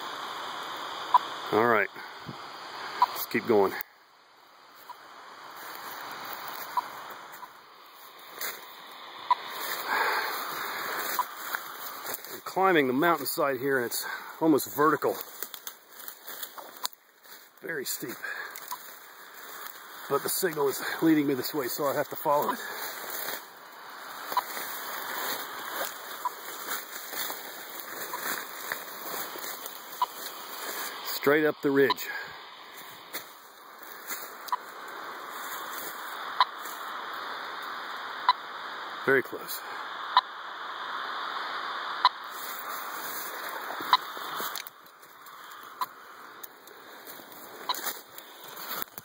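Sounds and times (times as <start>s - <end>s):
static hiss: 0.0s - 49.0s
footsteps through dry leaves: 5.6s - 8.8s, 9.4s - 31.2s, 32.6s - 36.8s, 42.3s - 45.8s, 46.8s - 49.0s.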